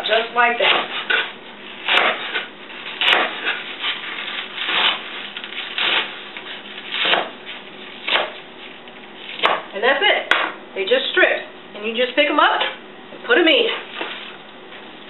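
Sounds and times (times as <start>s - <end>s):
knife slicing greens on cutting board: 0.6s - 8.4s.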